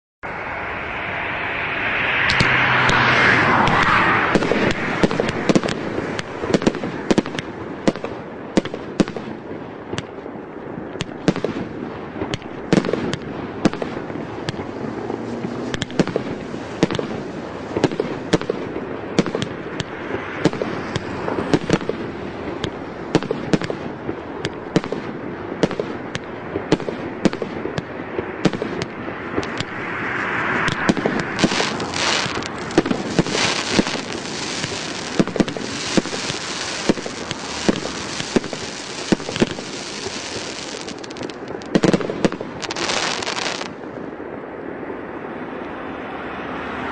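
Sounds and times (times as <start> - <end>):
firework pops and bangs: 3.6 - 10.2, 10.8 - 29.8, 30.6 - 43.9.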